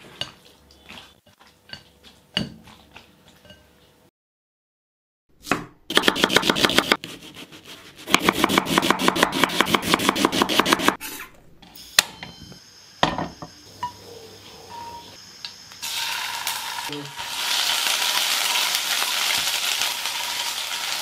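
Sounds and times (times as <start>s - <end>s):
knife chopping onion on wooden board: 5.4s - 7.3s, 8.0s - 11.0s.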